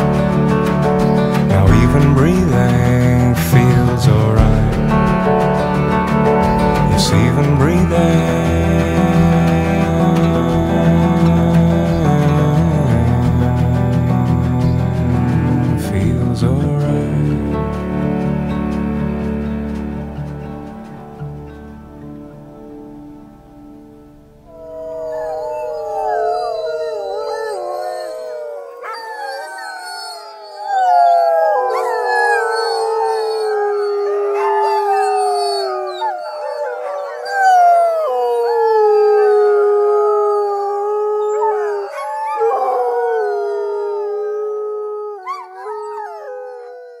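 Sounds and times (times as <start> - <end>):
dogs howling: 5.2 - 15.8, 24.5 - 47.0.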